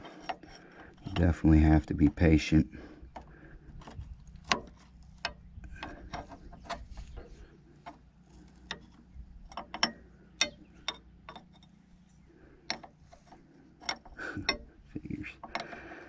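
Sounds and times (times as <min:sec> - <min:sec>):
wrench clicking against nut: 0:09.5 - 0:11.7, 0:15.4 - 0:16.0.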